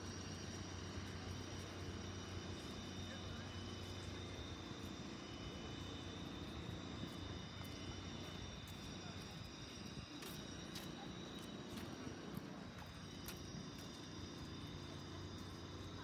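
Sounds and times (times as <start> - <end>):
city street rumble: 0.0 - 16.0
faint voices: 0.7 - 5.1, 7.0 - 15.0.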